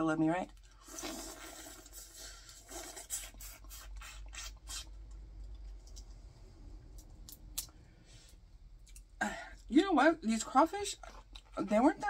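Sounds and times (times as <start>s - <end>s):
chewing: 11.0s - 11.7s.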